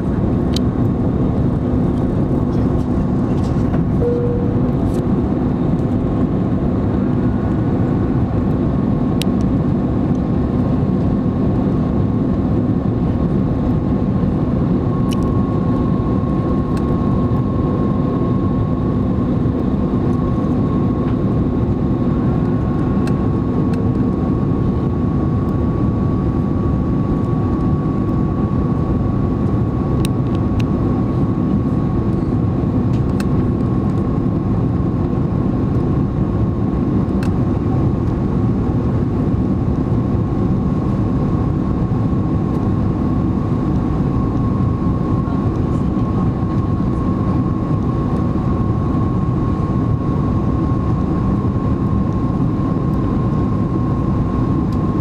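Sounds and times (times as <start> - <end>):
airliner engine and airflow roar: 0.0 - 55.0
steady high tone: 4.0 - 5.1.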